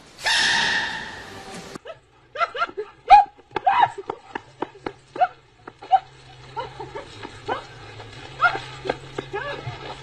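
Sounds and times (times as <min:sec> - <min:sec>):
dog yipping and barking: 0:00.2 - 0:01.4.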